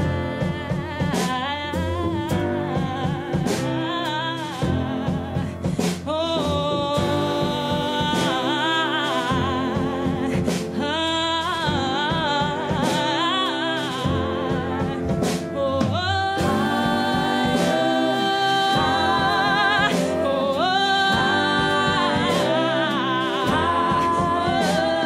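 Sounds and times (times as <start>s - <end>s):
piano: 0.0s - 25.0s
upright bass: 0.0s - 25.0s
voices singing in harmony: 7.0s - 10.9s, 11.8s - 25.0s
horns: 7.0s - 25.0s.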